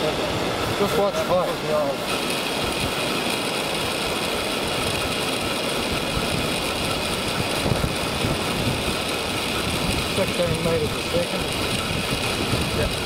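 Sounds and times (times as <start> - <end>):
wind: 0.0 - 13.0
wind rumble on microphone: 7.4 - 13.0.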